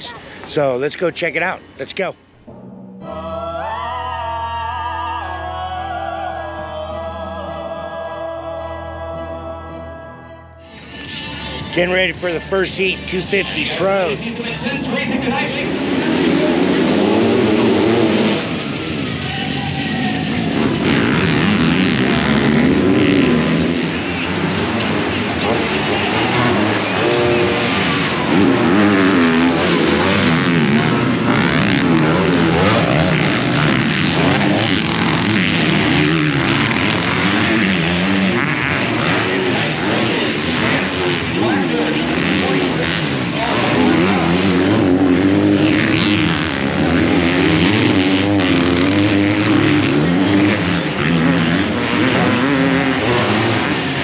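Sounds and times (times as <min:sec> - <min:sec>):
motocross bike engines revving: 0:11.2 - 0:54.0.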